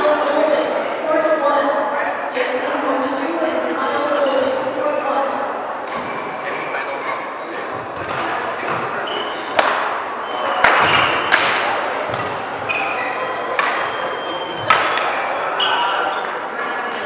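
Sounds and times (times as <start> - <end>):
large hall noise: 0.0 - 17.0
shoe squeaks on court floor: 6.0 - 7.3, 8.6 - 11.4, 12.6 - 16.2
racket striking shuttlecock: 9.5 - 9.9, 10.6 - 12.4, 13.6 - 13.9, 14.6 - 15.1.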